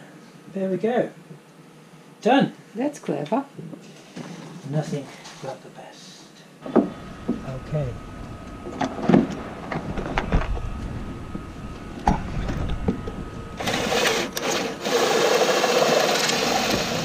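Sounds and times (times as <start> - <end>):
cordless drill boring into wood: 13.6 - 17.0.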